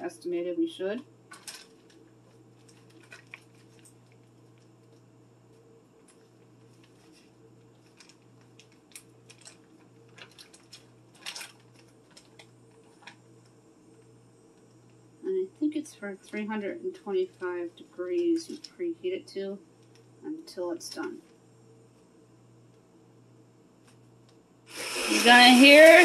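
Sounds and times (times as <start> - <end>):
steady low hum: 0.0 - 26.0
packet crinkling: 1.3 - 5.0, 6.0 - 13.5.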